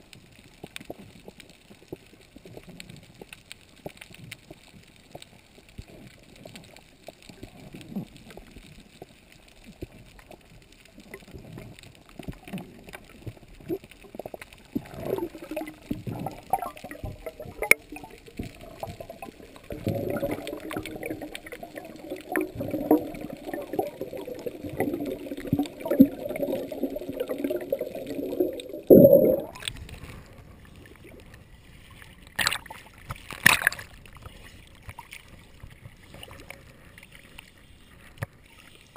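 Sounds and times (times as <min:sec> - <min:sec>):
faint underwater crackle and clicks: 0:00.0 - 0:38.9
gurgling bubbles: 0:11.0 - 0:29.9
loud bubbly burst: 0:14.8 - 0:29.6.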